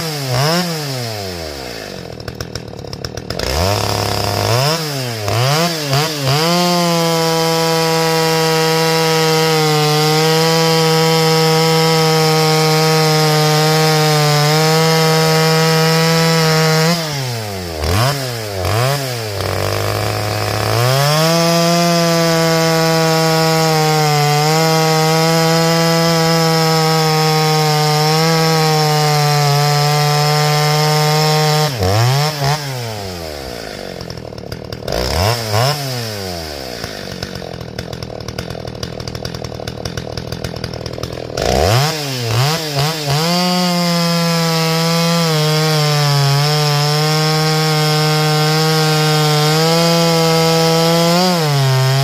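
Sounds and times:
chainsaw cutting logs: 0.0 - 52.0.

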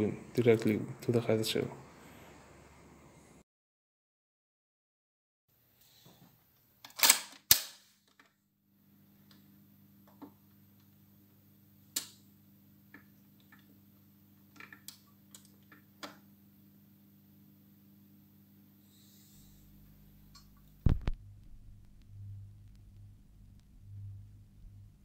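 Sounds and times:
record changer motor hum: 19.4 - 25.0.

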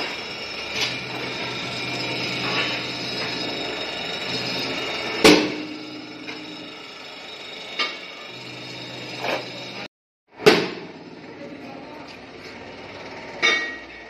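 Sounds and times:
drill motor humming: 0.0 - 9.9.

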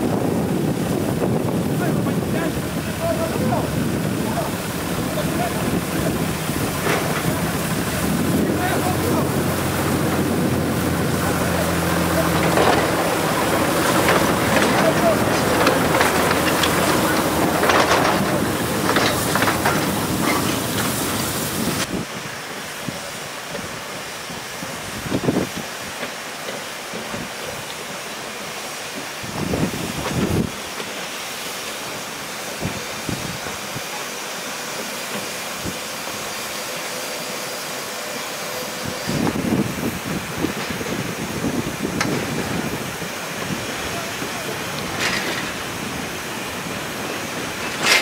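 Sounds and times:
steam locomotive hissing steam: 0.0 - 48.0.

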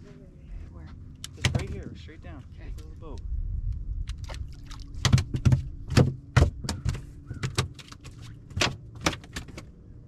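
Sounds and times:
knocks on boat deck: 5.1 - 7.6.

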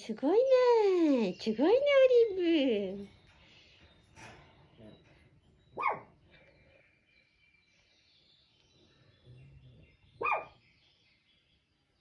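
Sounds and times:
dog barking: 5.8 - 6.1, 10.2 - 10.6.

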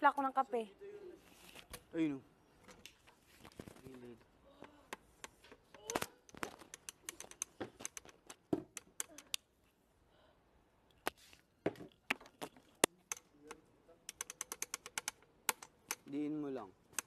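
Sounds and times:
small tiles clicking: 5.7 - 9.4, 12.1 - 16.1.

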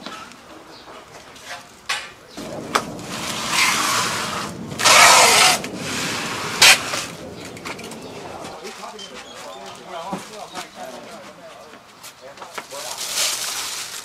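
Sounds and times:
basket scraping on concrete: 2.4 - 11.3, 12.8 - 14.0.

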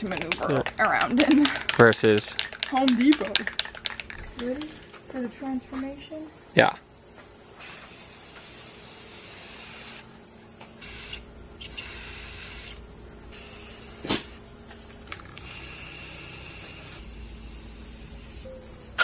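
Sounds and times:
aerosol spray hissing: 7.5 - 18.9.

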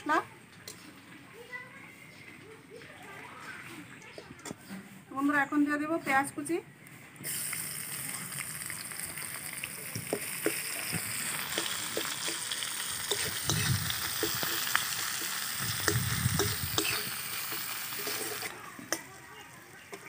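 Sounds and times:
onions sizzling in oil: 7.2 - 20.0.

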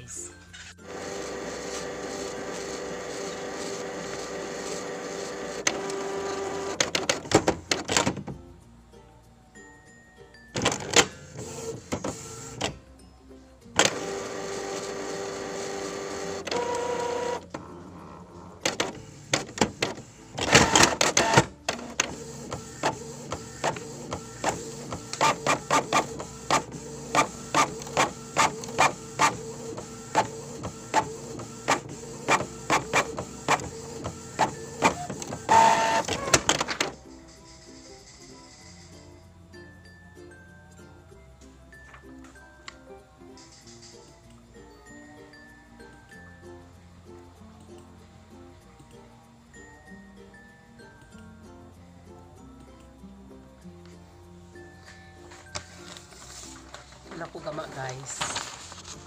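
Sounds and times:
printer motor whir: 0.8 - 8.1, 13.8 - 37.0
printer clatter: 0.9 - 8.4, 10.6 - 12.8, 13.8 - 17.6, 18.6 - 37.0
printer clicking: 0.9 - 8.4, 10.6 - 12.8, 13.8 - 17.6, 18.6 - 37.0.

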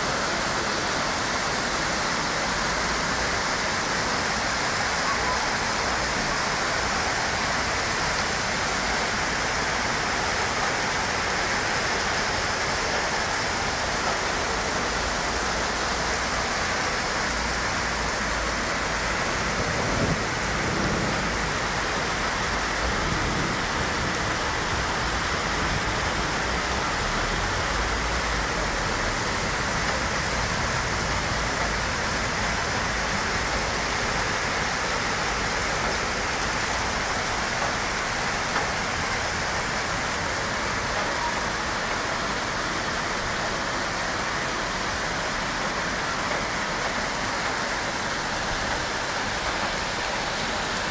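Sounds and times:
rain falling on asphalt and cars: 0.0 - 50.9.

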